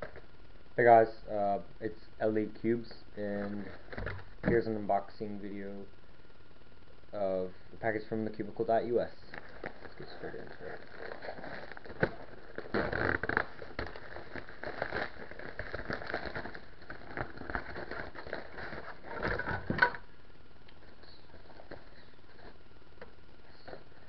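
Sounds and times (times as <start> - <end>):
plastic mailer rustling: 9.2 - 20.0.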